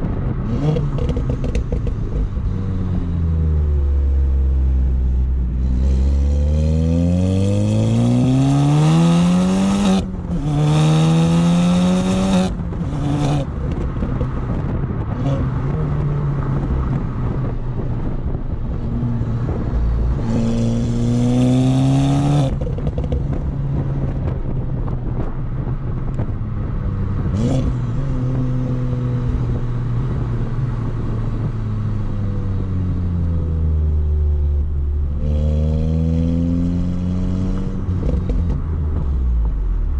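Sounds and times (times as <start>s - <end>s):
car exhaust revving: 0.0s - 31.5s.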